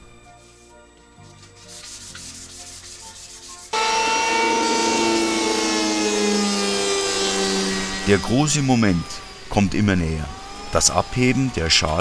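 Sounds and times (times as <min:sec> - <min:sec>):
hand tool rubbing on wood: 0:01.5 - 0:09.0
electric planer planing wood: 0:03.7 - 0:12.0.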